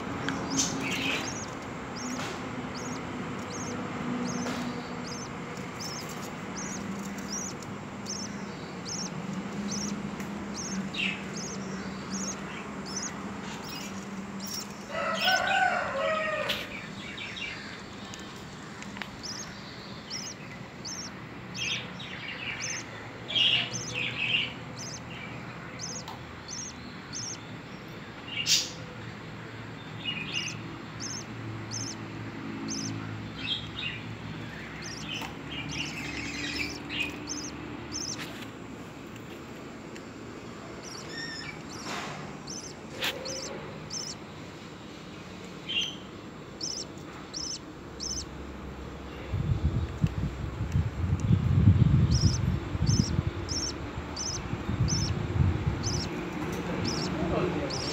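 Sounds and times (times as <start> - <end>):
chicks peeping: 0.0 - 27.4, 30.2 - 39.3, 39.9 - 44.7, 45.3 - 48.4, 51.9 - 57.9
budgerigar chirps: 0.3 - 15.4, 19.2 - 21.9, 22.5 - 25.0, 25.8 - 27.4, 30.3 - 32.0, 32.6 - 33.0, 34.5 - 38.2, 40.8 - 44.2, 46.6 - 48.3, 52.1 - 56.2, 56.8 - 57.9.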